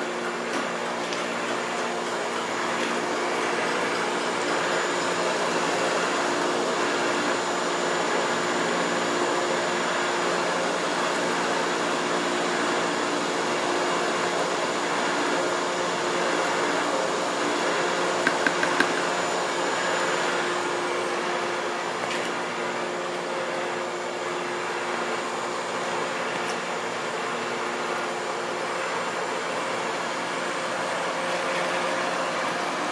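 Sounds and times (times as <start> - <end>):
liquid churning: 18.3 - 19.2.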